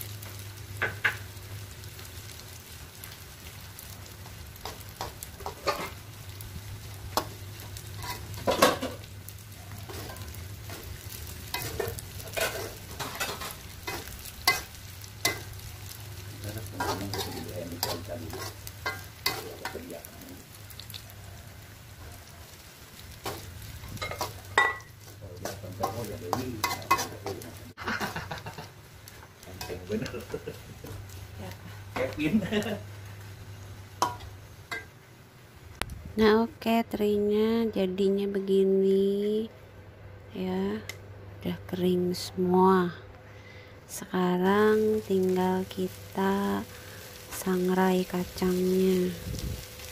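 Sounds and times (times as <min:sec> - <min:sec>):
fish sizzling in hot oil: 0:00.0 - 0:36.7, 0:43.6 - 0:49.9
metal spatula scraping wok: 0:04.6 - 0:06.1, 0:07.2 - 0:09.1, 0:09.8 - 0:16.0, 0:16.6 - 0:19.9, 0:23.2 - 0:27.6.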